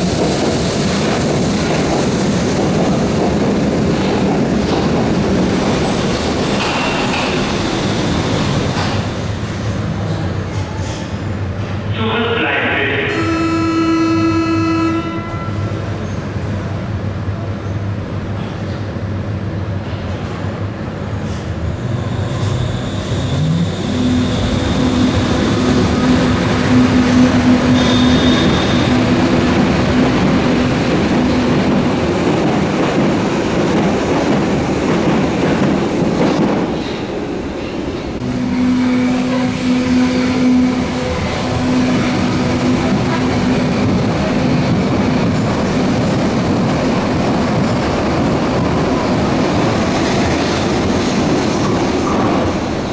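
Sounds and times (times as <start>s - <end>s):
train wheels rumbling on rails: 0.0s - 12.0s, 15.1s - 52.9s
high squeal: 21.8s - 29.0s
train motor hum: 23.1s - 32.6s.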